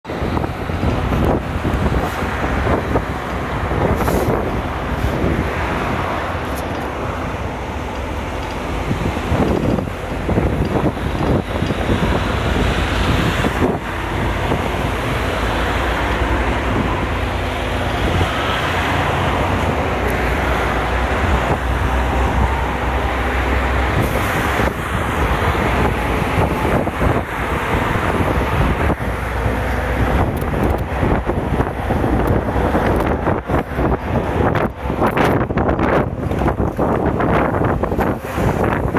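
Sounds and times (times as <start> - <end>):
engine and road rumble: 0.0 - 38.9
wind noise: 0.0 - 38.9.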